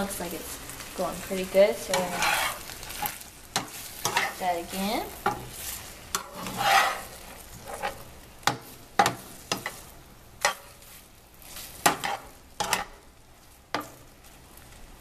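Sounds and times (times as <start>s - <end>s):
chicken sizzling in sauce: 0.0s - 15.0s
metal spatula scraping frying pan: 1.8s - 13.1s.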